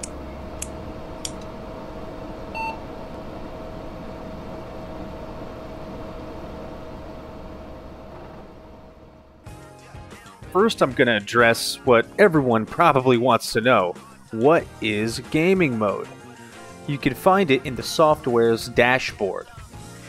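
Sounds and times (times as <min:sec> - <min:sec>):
sharp clicks: 0:00.0 - 0:01.5
steady electronic hum: 0:00.0 - 0:09.5
short beep: 0:02.5 - 0:02.8.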